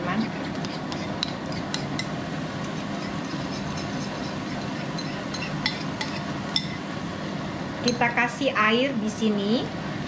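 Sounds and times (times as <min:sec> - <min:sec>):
constant low hum: 0:00.0 - 0:10.0
metal spoon clinking ceramic bowl: 0:03.0 - 0:06.8.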